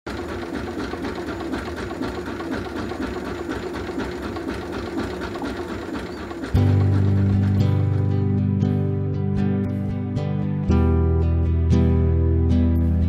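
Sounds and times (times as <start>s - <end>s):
small boat engine running: 0.1s - 10.2s.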